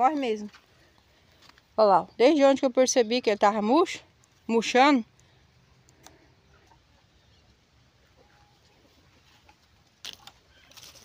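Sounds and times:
faint outdoor ambience: 0:00.0 - 0:11.0
soft clicks: 0:05.1 - 0:06.2.

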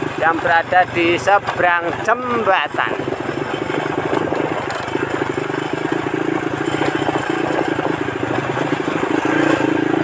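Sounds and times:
motorcycle engine running: 0:00.0 - 0:10.0
road noise: 0:00.0 - 0:10.0
wind noise: 0:02.6 - 0:05.5.

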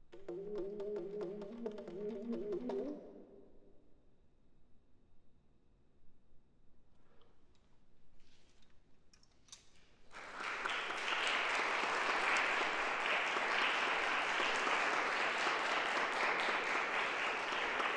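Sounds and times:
audience applause: 0:10.1 - 0:17.9.

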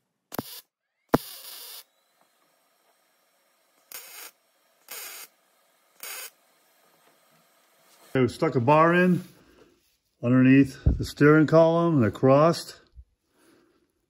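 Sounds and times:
electric welder buzzing: 0:00.0 - 0:09.2.

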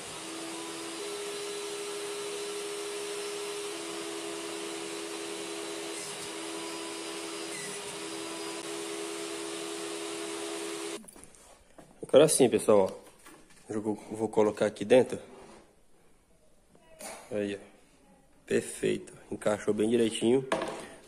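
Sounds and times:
table saw running: 0:00.0 - 0:11.0.

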